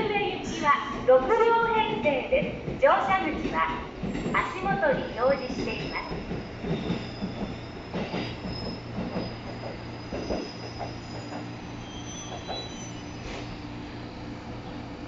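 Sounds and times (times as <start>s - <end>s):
train wheels clacking over rail joints: 2.5s - 11.5s
high wheel squeal: 5.2s - 13.7s.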